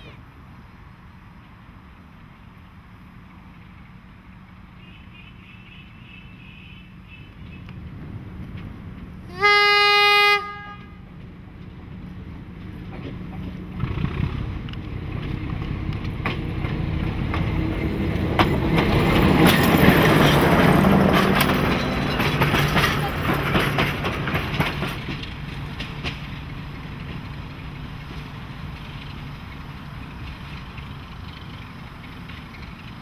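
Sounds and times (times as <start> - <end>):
diesel locomotive engine drone: 0.0 - 33.0
train wheels clicking over rail joints: 14.5 - 33.0.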